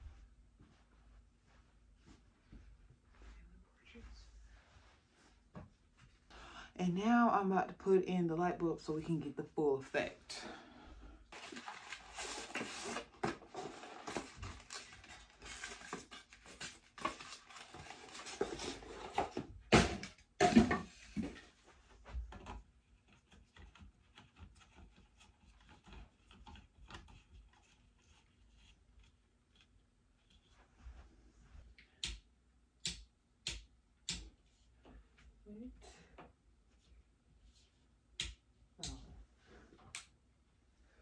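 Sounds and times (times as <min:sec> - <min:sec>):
cardboard packaging rustling: 0:11.3 - 0:20.0.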